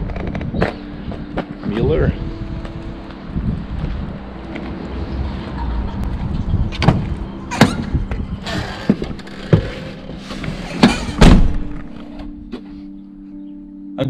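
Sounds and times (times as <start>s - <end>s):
engine rumbling: 0.0s - 12.6s
knocks and thuds: 10.8s - 11.9s.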